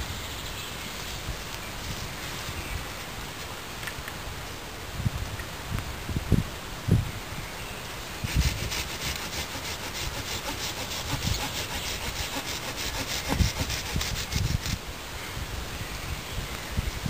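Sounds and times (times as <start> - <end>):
hand saw cutting wood: 8.2 - 14.8.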